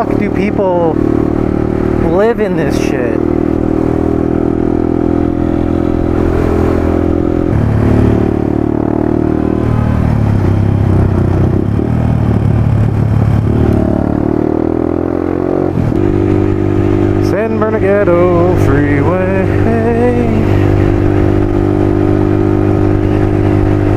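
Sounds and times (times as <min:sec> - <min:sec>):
motorcycle engine running: 0:00.0 - 0:23.9
wind rush: 0:03.2 - 0:15.0, 0:18.4 - 0:23.9.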